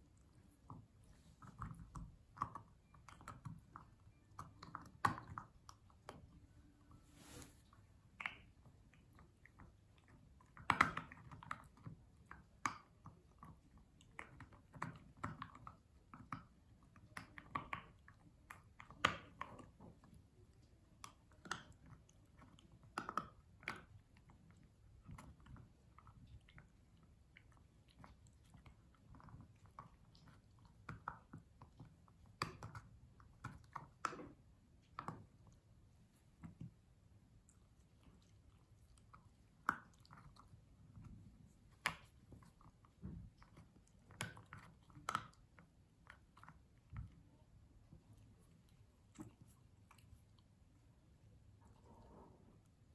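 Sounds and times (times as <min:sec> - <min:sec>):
puppy chewing hard chew: 0:37.4 - 0:50.8.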